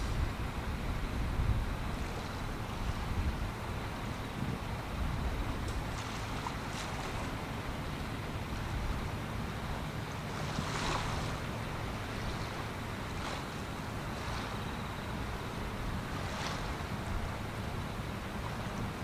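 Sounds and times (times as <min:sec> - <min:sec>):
low drone of ship: 0:00.0 - 0:19.0
small waves washing at shore: 0:00.0 - 0:19.0
wind: 0:00.0 - 0:19.0.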